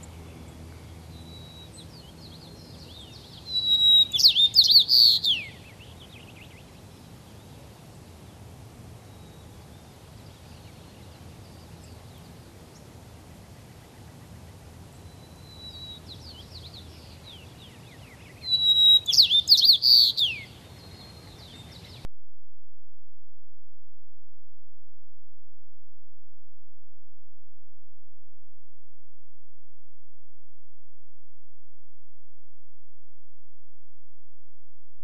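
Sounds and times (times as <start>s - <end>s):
sparrow singing: 0.0s - 7.5s, 14.9s - 22.1s
low background hiss: 0.0s - 22.1s.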